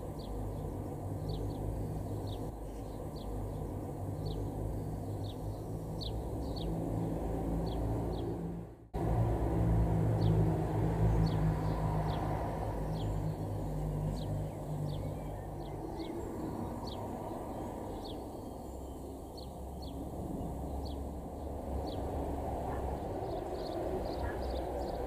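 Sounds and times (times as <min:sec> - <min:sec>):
nestlings begging chirps: 0:00.0 - 0:07.0, 0:11.2 - 0:22.0, 0:22.7 - 0:25.0
low steady rumble: 0:00.0 - 0:17.8.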